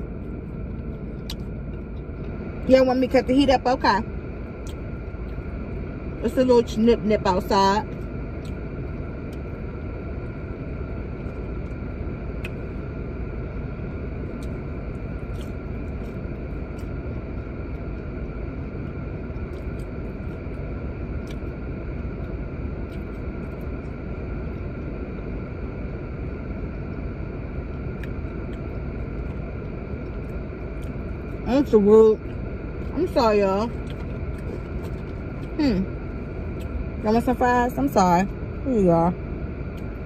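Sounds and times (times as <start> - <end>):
car engine humming: 0.0 - 40.0
heater fan blowing: 0.0 - 40.0.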